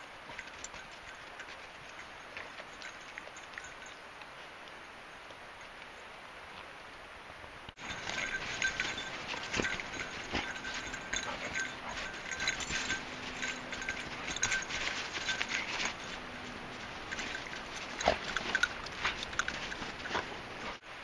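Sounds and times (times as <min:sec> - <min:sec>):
dogs snuffling: 0:07.8 - 0:20.8
snow crunching and scraping: 0:07.8 - 0:20.9.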